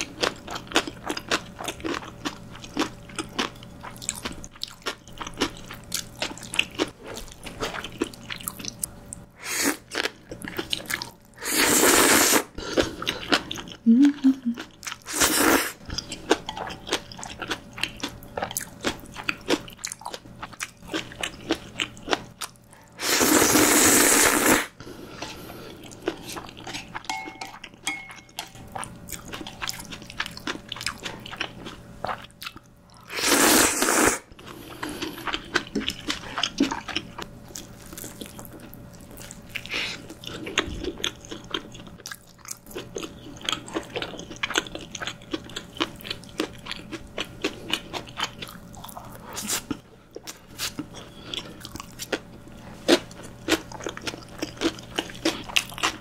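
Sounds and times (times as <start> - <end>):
loud noodle slurp: 11.4 - 12.5, 23.0 - 24.8, 33.1 - 34.3.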